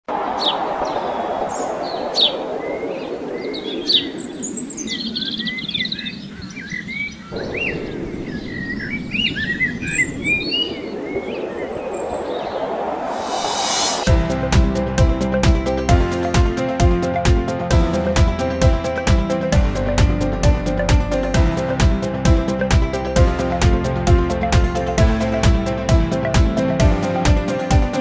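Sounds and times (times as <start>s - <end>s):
birds chirping: 0.2s - 14.1s.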